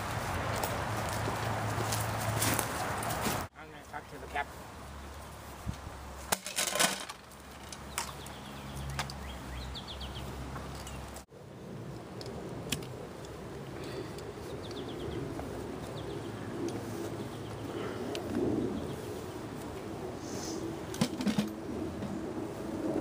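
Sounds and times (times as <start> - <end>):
small birds chirping: 7.5 - 11.2, 13.8 - 19.2.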